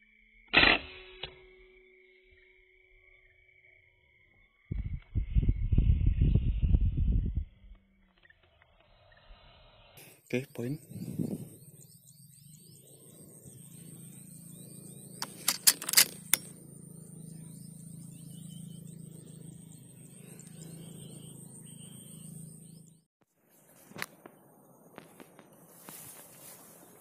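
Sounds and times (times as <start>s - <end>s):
faint chirps: 1.6s - 27.0s
low hum: 4.7s - 27.0s
sharp clicks and knocks: 15.2s - 16.5s.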